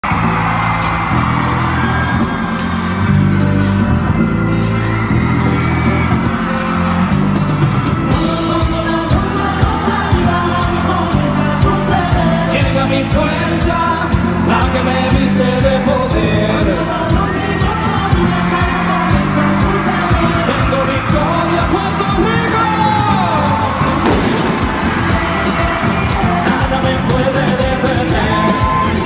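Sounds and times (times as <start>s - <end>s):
deep bass notes: 0.0s - 29.0s
drumbeat: 0.0s - 29.0s
live band music: 0.0s - 29.0s
person singing: 8.1s - 29.0s.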